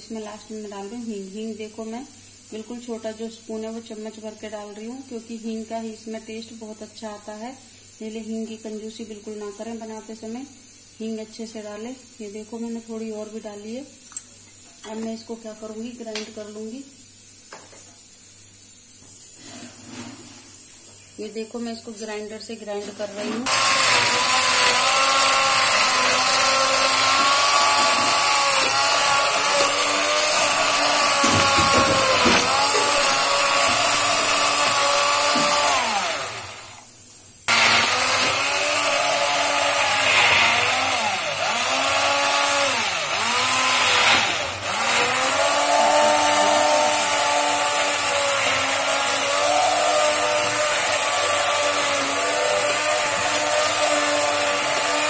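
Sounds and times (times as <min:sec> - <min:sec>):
hand blender motor running: 0:23.4 - 0:36.8, 0:37.5 - 0:55.0.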